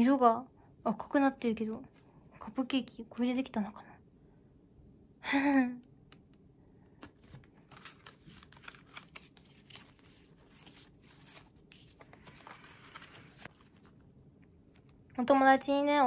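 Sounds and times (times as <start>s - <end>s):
paper cards rustling and tapping: 6.1s - 15.2s.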